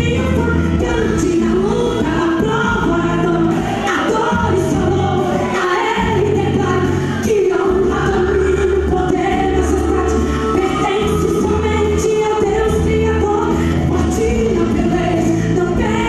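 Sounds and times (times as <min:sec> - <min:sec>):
woman singing into a microphone: 0:00.0 - 0:16.0.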